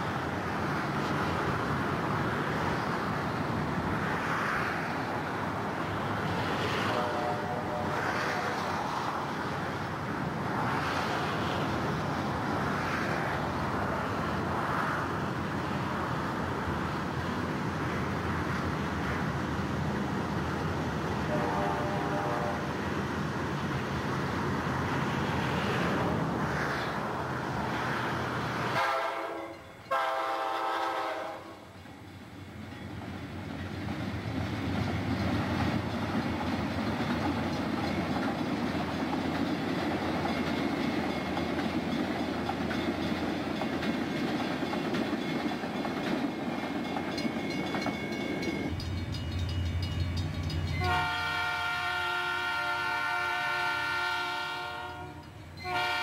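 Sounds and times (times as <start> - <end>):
train rumbling past: 0.0 - 56.0
locomotive horn blowing: 6.8 - 8.6, 21.3 - 22.7, 28.7 - 31.7, 50.7 - 56.0.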